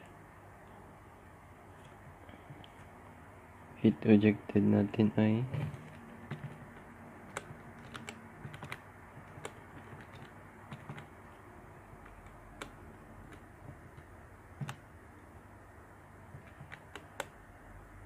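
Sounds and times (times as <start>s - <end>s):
calculator keys clicking: 5.6s - 11.1s, 12.0s - 14.8s, 16.3s - 17.4s.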